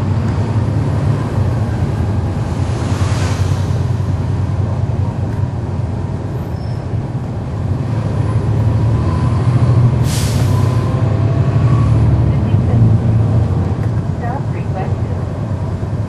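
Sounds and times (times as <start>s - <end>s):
bus diesel engine droning: 0.0s - 16.0s
air hiss: 10.0s - 10.7s.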